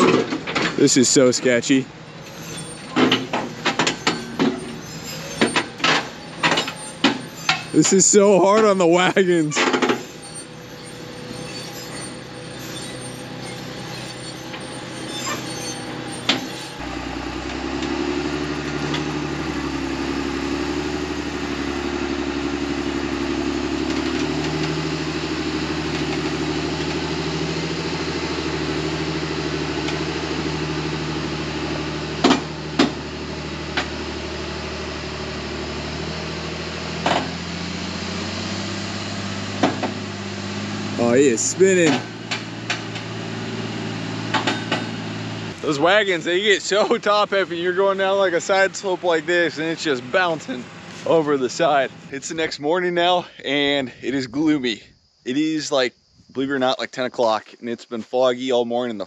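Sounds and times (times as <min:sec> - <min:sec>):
heavy diesel engine running: 0:00.0 - 0:53.8
wagons jolting knocks: 0:02.3 - 0:16.8.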